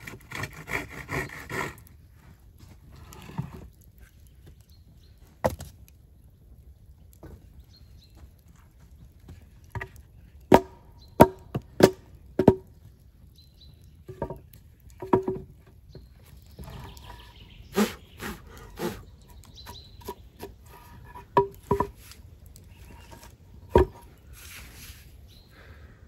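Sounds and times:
tool knocking on wood: 15.0s - 15.4s, 21.4s - 22.0s.

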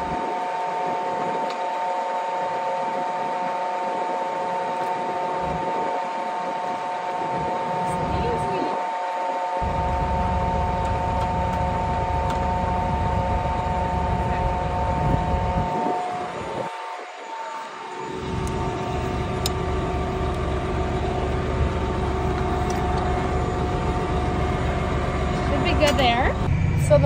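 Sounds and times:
low rumble: 9.6s - 27.0s
tractor engine running: 9.6s - 27.0s.

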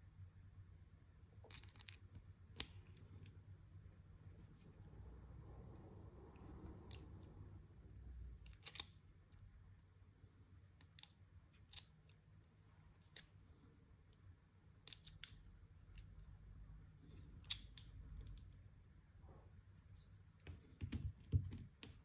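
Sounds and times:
faint clicks and taps of handling: 20.0s - 22.0s.

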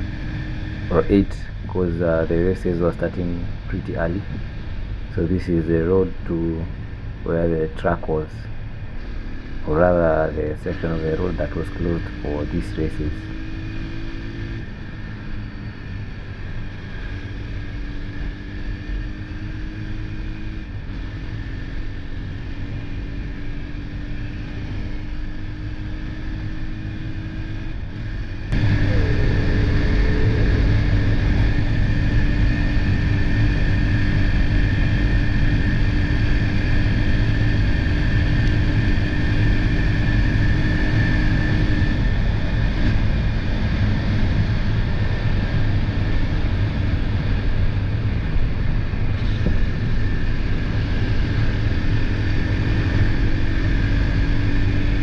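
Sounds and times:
motorcycle engine running: 13.2s - 55.0s.

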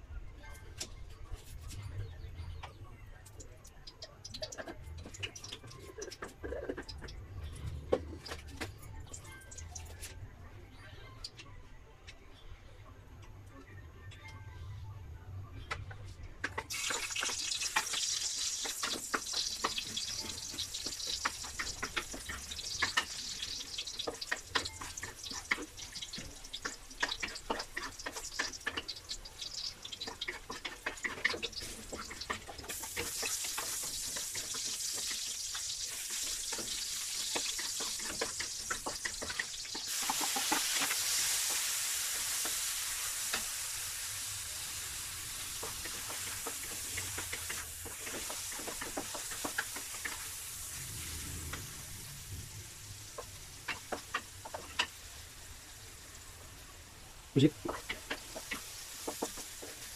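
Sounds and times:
food sizzling in hot oil: 16.5s - 59.9s.

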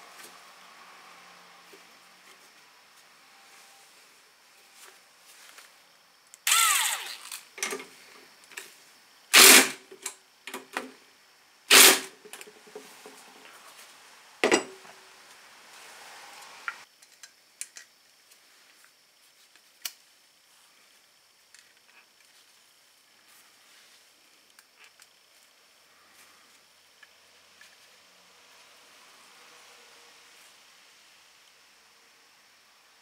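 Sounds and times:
cordless power driver running: 6.5s - 7.4s, 9.4s - 9.7s, 11.7s - 12.1s
tool knocking metal parts: 14.4s - 14.8s.

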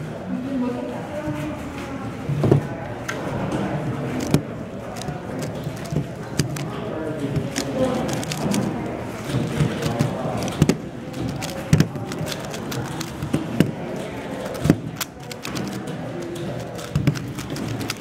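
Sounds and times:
chatter of many voices: 0.0s - 18.0s
plastic cube clicking: 4.2s - 6.8s, 7.4s - 13.8s, 14.4s - 18.0s.

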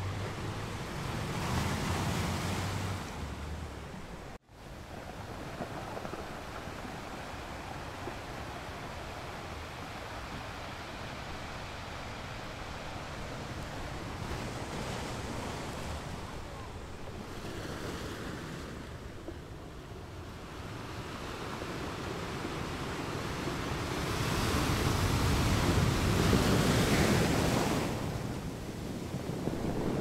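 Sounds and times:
waves crashing on rocks: 0.0s - 30.0s.

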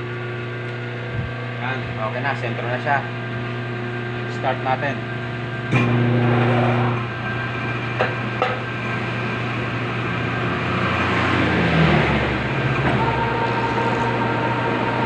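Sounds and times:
lathe motor humming: 5.1s - 15.0s.

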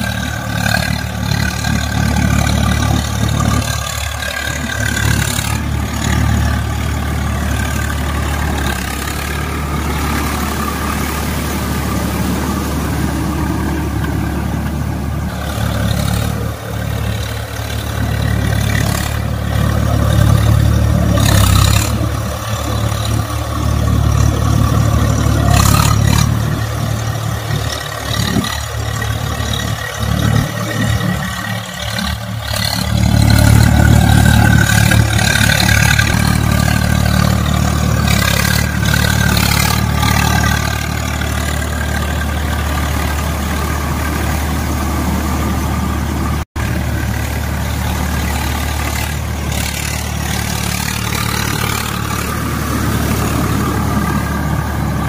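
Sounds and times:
rotavator churning through mud: 0.0s - 55.0s
tractor diesel engine running: 0.0s - 55.0s.

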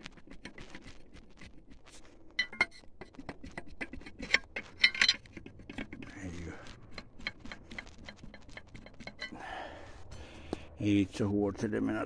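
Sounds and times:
wrench clicking and clinking on metal: 2.4s - 6.2s, 6.9s - 9.4s.

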